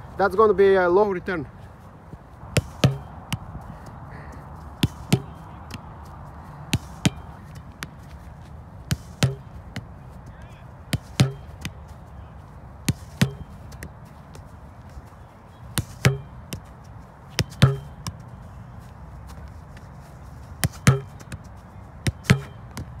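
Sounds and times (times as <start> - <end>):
ball striking wooden board: 2.6 - 3.2, 9.2 - 9.5, 15.8 - 16.4, 17.4 - 18.0, 22.2 - 22.6.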